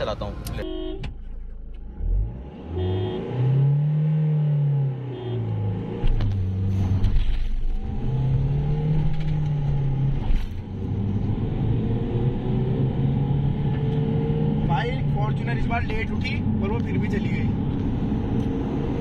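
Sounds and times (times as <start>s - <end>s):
diesel engine accelerating hard: 1.8s - 19.0s.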